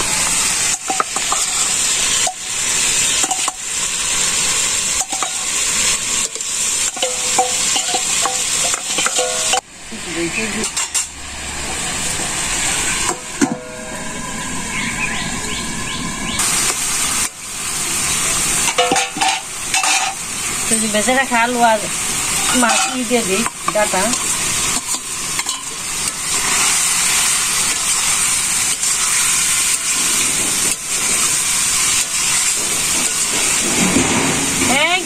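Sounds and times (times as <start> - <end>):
food sizzling in a pan: 0.0 - 15.2, 16.3 - 35.0
spatula scraping a pan: 4.9 - 9.6, 22.4 - 25.6.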